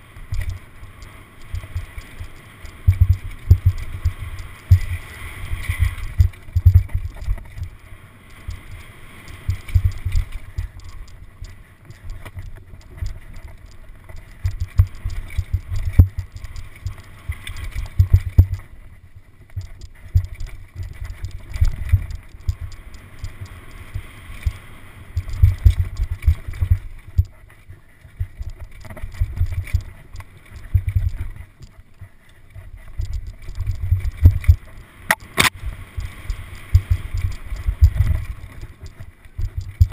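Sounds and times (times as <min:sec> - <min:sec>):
bike thumping on dirt trail: 0:01.5 - 0:07.8
bike chain rattling: 0:09.4 - 0:18.7, 0:28.3 - 0:34.7
wind buffeting microphone: 0:35.4 - 0:39.9.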